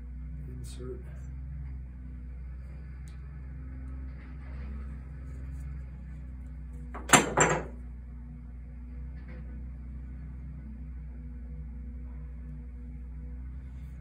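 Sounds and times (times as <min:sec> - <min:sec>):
low hum: 0:00.0 - 0:14.0
knocks on metal workbench: 0:07.0 - 0:07.8.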